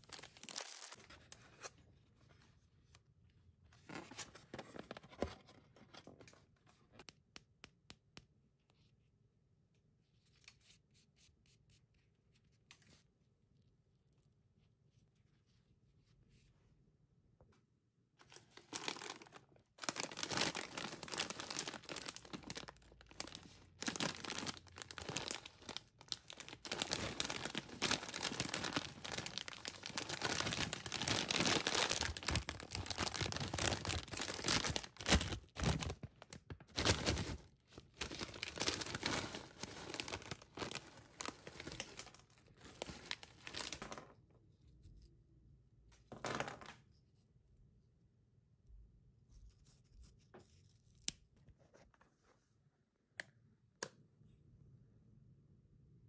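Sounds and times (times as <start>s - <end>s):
foil snack bag crinkling: 18.2s - 44.0s.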